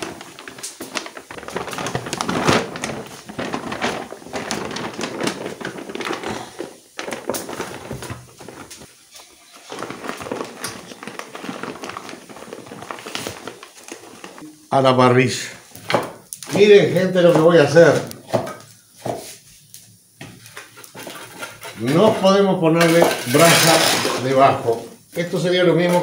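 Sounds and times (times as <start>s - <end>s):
paper bag rustling and crinkling: 0.0s - 14.9s, 20.4s - 26.0s.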